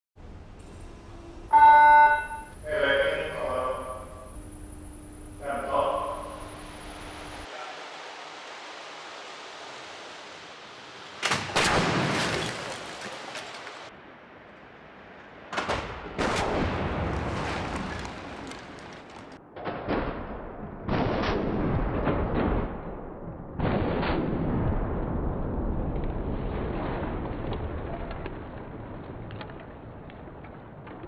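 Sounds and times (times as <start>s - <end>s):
steady hiss: 2.4s - 11.5s.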